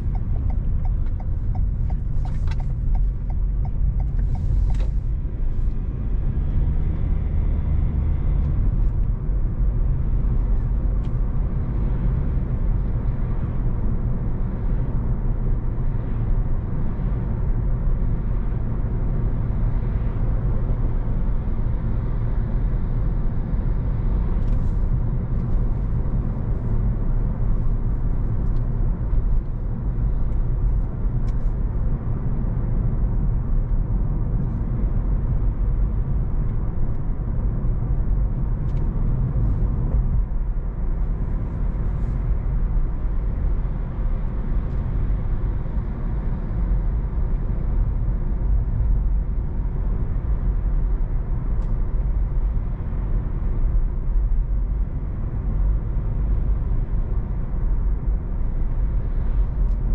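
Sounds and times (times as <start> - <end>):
road and tyre rumble in car: 0.0 - 59.9.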